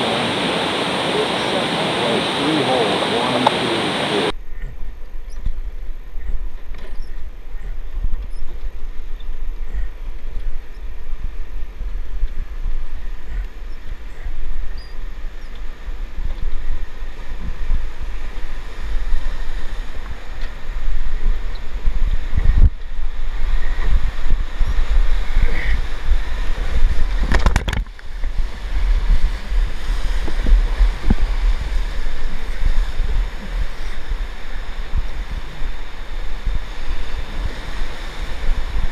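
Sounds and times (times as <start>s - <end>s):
whitewater rushing: 0.0s - 4.3s
wind buffeting microphone: 0.0s - 38.9s.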